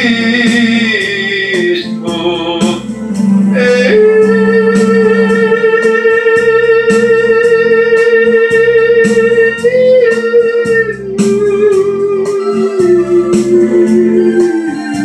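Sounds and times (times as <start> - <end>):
man singing held high note: 0.0 - 2.9, 3.6 - 14.2
guitar backing track with beat: 0.0 - 15.0.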